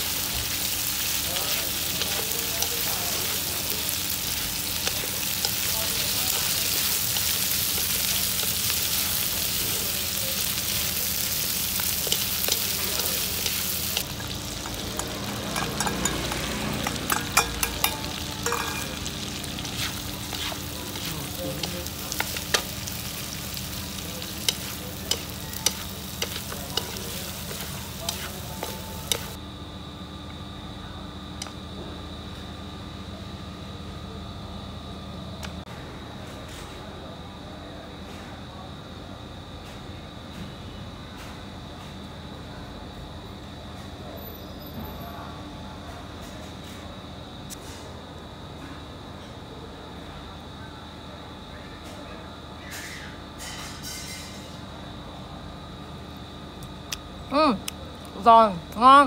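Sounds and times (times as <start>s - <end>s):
stir-fry sizzling in wok: 0.0s - 29.4s, 52.5s - 55.0s
spatula scraping wok: 10.4s - 29.4s.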